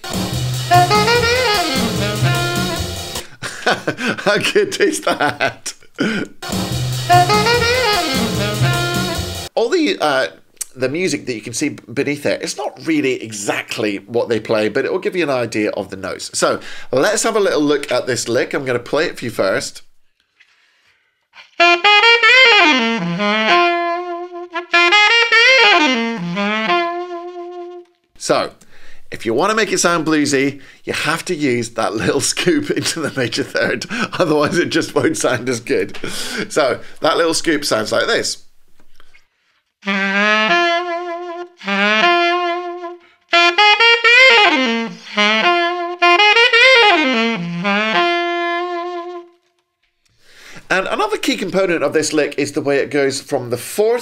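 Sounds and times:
alto saxophone bluesy lick: 0.0 - 3.4, 6.0 - 9.6, 21.4 - 29.9, 39.8 - 49.6.

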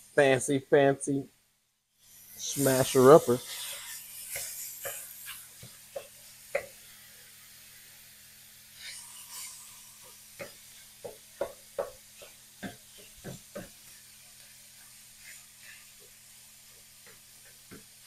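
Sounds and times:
faint sizzle: 0.0 - 18.0
plastic utensil knocking on skillet: 10.4 - 13.8.

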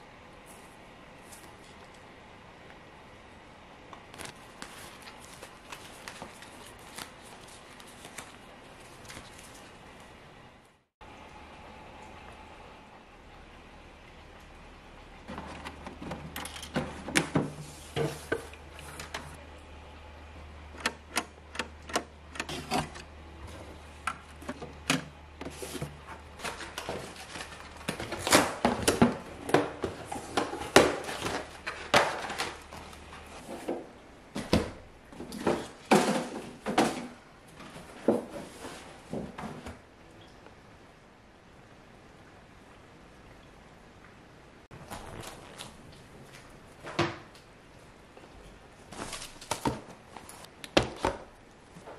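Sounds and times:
cardboard boxes rustling: 25.4 - 39.8.

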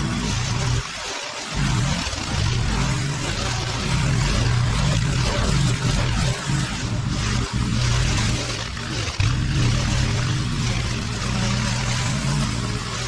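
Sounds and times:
lawn mower cutting long grass: 0.0 - 13.0.

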